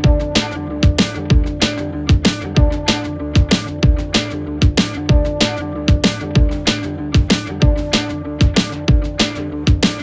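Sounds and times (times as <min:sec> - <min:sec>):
deep drum beat: 0:00.0 - 0:10.0.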